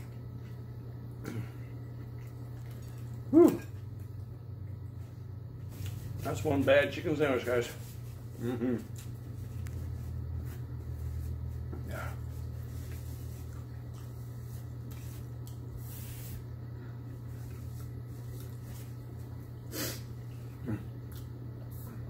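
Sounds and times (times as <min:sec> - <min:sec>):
man sniffing and snorting: 0:19.7 - 0:20.1.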